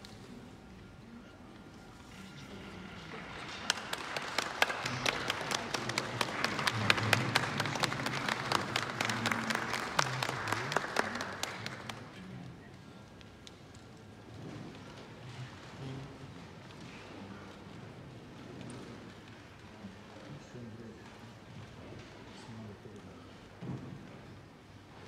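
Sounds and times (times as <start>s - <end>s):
audience applauding: 2.6s - 12.2s.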